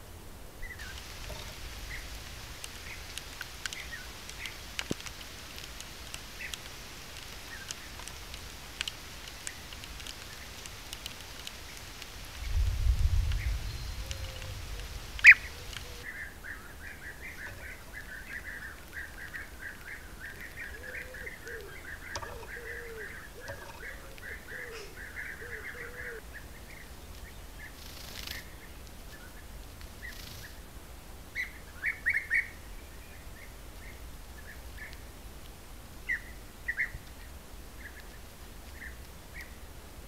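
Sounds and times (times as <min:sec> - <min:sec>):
birds calling: 0:00.6 - 0:08.5, 0:13.3 - 0:29.4
small ticks: 0:00.8 - 0:16.1, 0:17.4 - 0:24.4, 0:27.1 - 0:30.6
wind rumble on microphone: 0:07.8 - 0:16.1.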